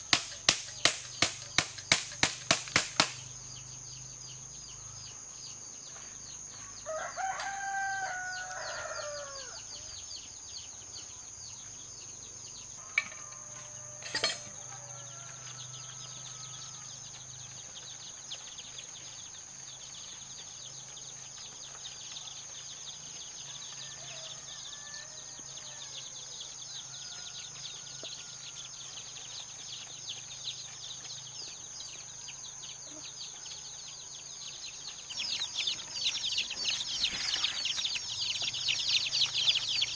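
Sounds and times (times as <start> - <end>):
high insect drone: 0.0 - 39.9
sharp knocks: 0.1 - 3.3
rooster crowing: 6.6 - 9.9, 12.7 - 17.6, 23.5 - 28.9.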